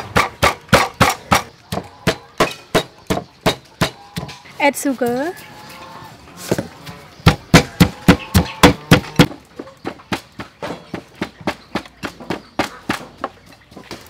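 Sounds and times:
stone pestle pounding in mortar: 7.3 - 9.3.

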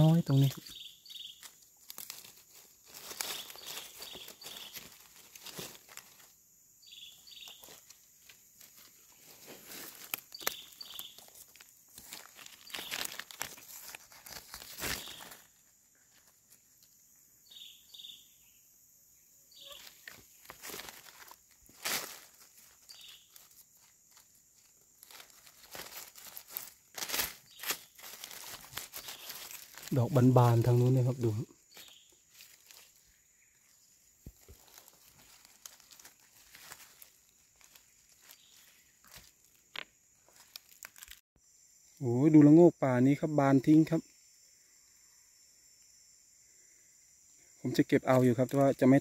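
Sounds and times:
high chirping call: 0.0 - 1.5, 6.8 - 7.6, 17.4 - 18.6, 19.5 - 20.1, 22.9 - 23.3
dry leaves rustling and crackling: 0.0 - 16.8, 19.5 - 41.2.

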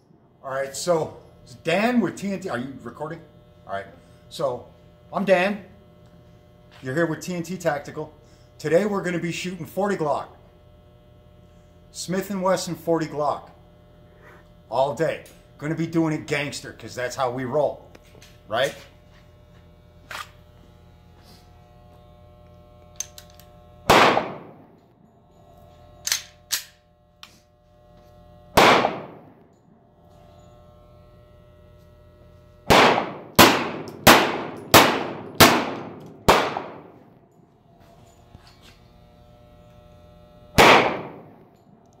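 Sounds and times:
pistol shots with echo: 23.9 - 24.7, 28.6 - 29.3, 32.7 - 37.0, 40.6 - 41.4.

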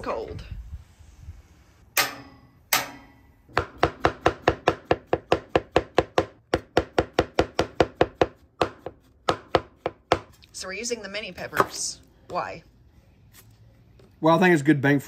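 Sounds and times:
cleaver chopping on cutting board: 3.6 - 10.3.

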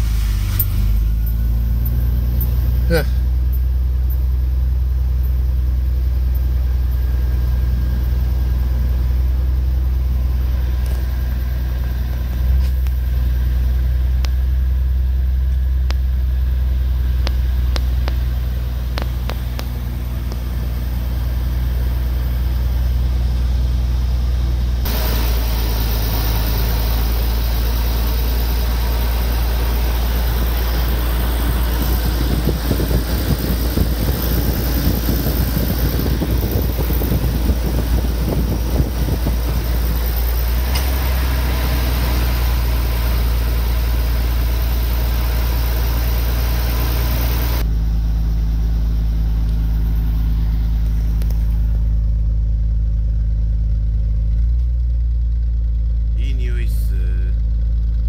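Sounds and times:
car engine idling: 0.0 - 58.0
steady hiss: 24.9 - 31.9.

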